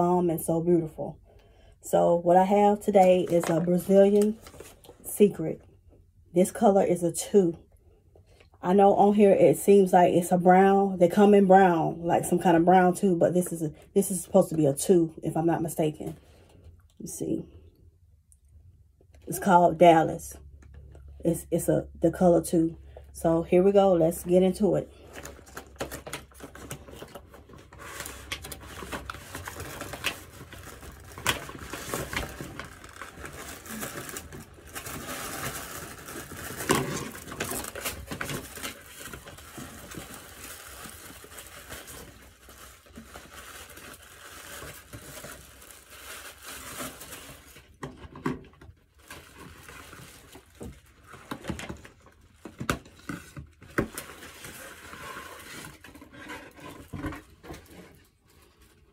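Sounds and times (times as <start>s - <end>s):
cardboard box and plastic crinkling: 24.7s - 58.9s.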